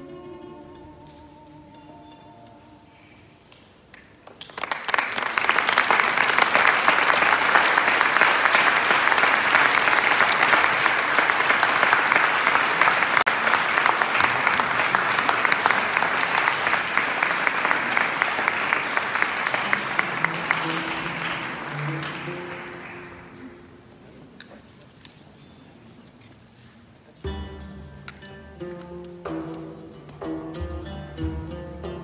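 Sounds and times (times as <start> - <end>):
audience applause: 4.2 - 23.8.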